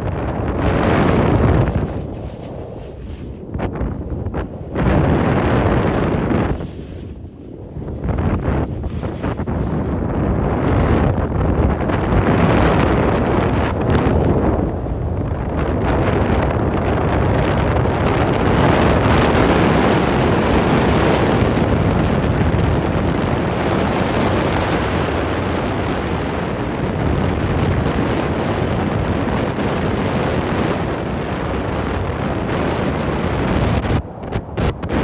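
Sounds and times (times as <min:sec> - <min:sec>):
wind rushing over microphone: 0:00.0 - 0:35.0.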